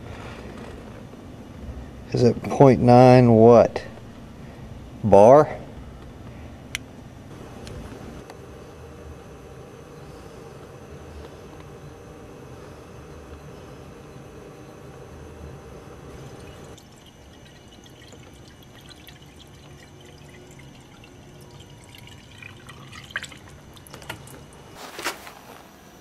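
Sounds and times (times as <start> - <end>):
liquid trickling into radiator: 16.3 - 24.8.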